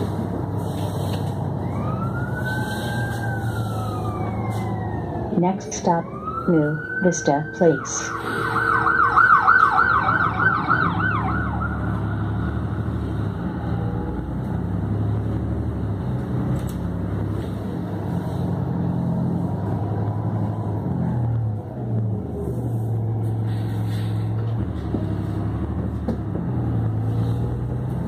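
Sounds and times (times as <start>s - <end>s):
bus engine drone: 0.0s - 28.0s
tyres on wet road: 0.0s - 28.0s
emergency siren yelping: 1.6s - 12.5s.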